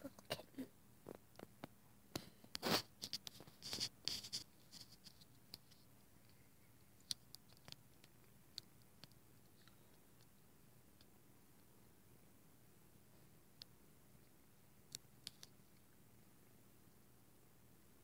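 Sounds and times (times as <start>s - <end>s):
handling scratching and rustling: 2.6s - 6.4s.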